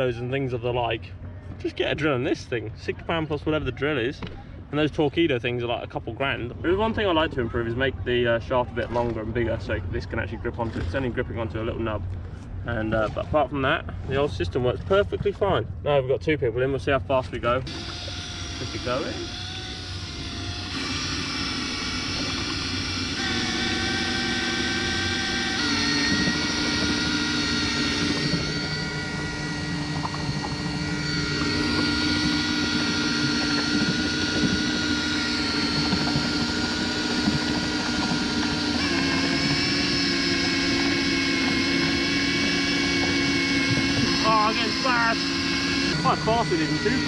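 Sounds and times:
cordless drill whining: 0:17.7 - 0:47.0.

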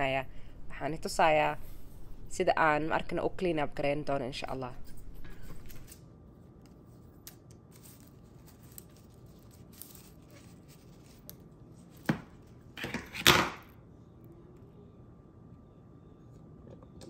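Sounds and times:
leaf crinkling tear: 0:07.2 - 0:11.5
dry leaf crackling: 0:07.7 - 0:11.4.

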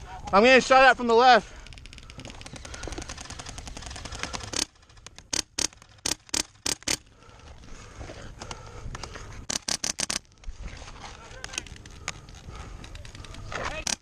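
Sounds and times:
full-auto airsoft gun clicks: 0:01.6 - 0:07.0
airsoft gun sharp cracks: 0:05.3 - 0:07.0.

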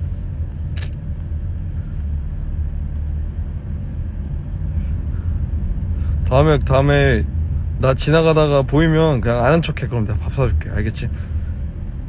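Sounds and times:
car interior rumble: 0:00.0 - 0:12.0
short click: 0:00.7 - 0:01.0.

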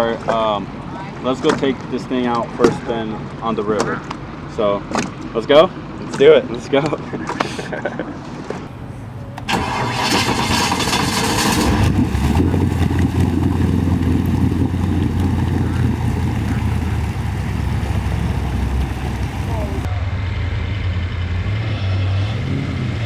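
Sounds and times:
jet boat engine idling: 0:08.7 - 0:19.9.

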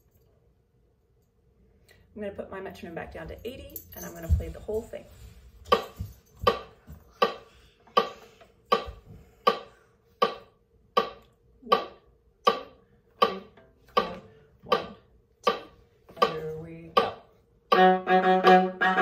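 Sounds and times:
metronome clicking: 0:08.7 - 0:19.0.

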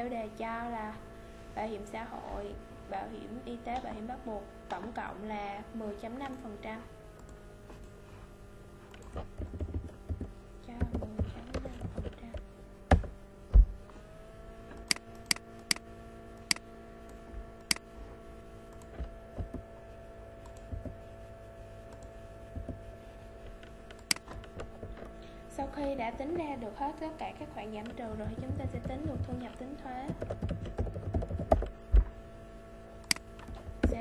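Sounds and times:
steady hum: 0:00.0 - 0:34.0
keyboard taps: 0:09.1 - 0:13.7, 0:28.1 - 0:29.4, 0:30.0 - 0:32.1
heavier thumps: 0:12.9 - 0:13.8, 0:30.1 - 0:32.2
mouse clicks: 0:33.0 - 0:33.6.

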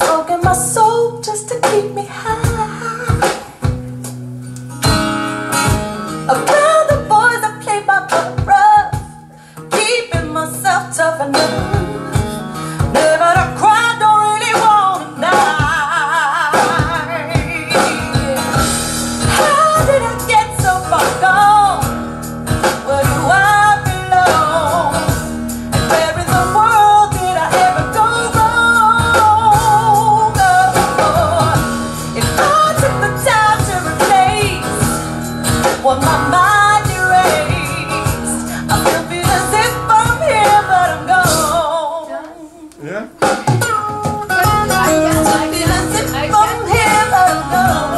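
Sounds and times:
woman singing blues-rock song: 0:00.0 - 0:04.0, 0:04.8 - 0:47.9
guitar: 0:00.0 - 0:47.9
bass line: 0:17.4 - 0:41.6, 0:44.4 - 0:47.9.

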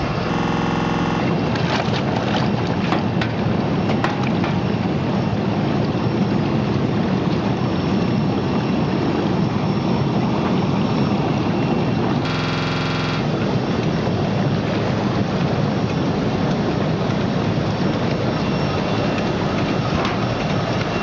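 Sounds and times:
water churning and bubbling: 0:00.2 - 0:12.0
sharp clicks: 0:00.3 - 0:01.3.

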